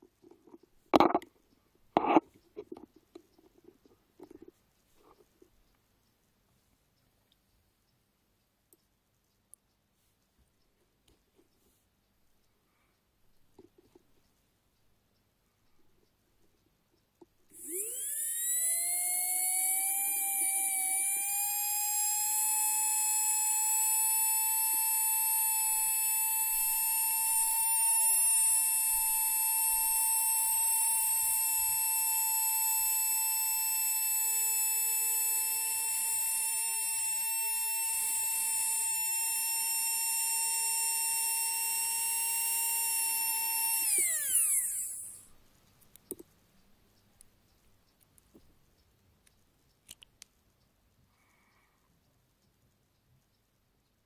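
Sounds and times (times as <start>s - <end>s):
flywheel motor whine: 17.5s - 45.3s.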